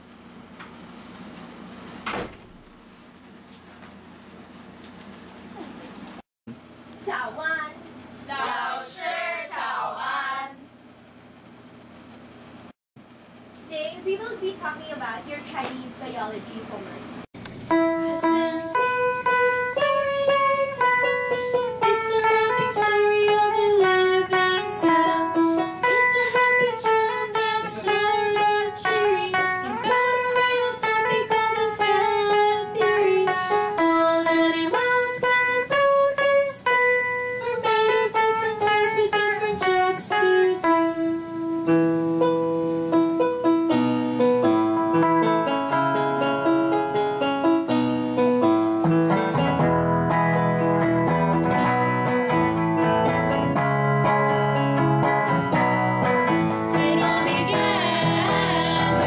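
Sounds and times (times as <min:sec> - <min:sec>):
guitar plucked melody: 0:17.5 - 0:59.0
keyboard: 0:35.7 - 0:59.0.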